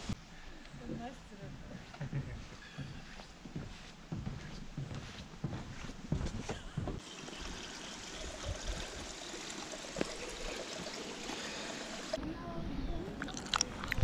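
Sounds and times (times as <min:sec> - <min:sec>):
footsteps on wooden decking: 0:00.0 - 0:07.0
faint scuffs of steps: 0:00.1 - 0:07.0
running water: 0:07.0 - 0:12.2.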